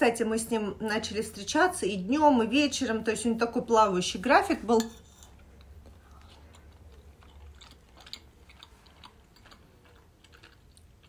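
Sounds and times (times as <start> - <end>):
wet chewing: 5.1 - 11.0.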